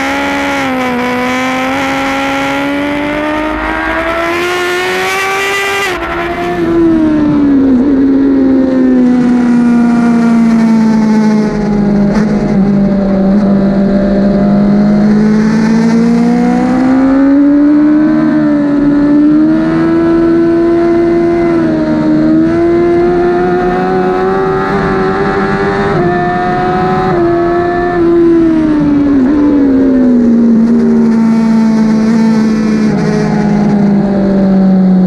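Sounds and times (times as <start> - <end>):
motorcycle engine at high revs: 0.0 - 35.0.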